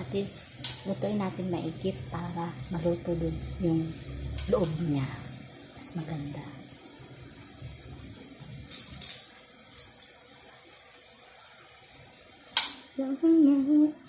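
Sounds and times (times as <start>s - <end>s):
food sizzling in oil: 0.0s - 14.0s
woman humming: 12.9s - 14.0s.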